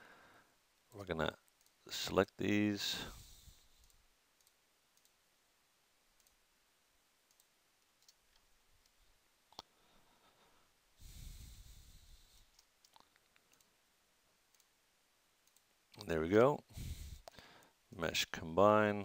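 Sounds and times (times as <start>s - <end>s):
soft rush of noise: 0.0s - 19.0s
computer mouse clicks: 3.8s - 5.2s, 6.2s - 6.4s, 7.3s - 9.7s, 12.3s - 13.7s, 14.5s - 14.7s, 15.4s - 16.1s.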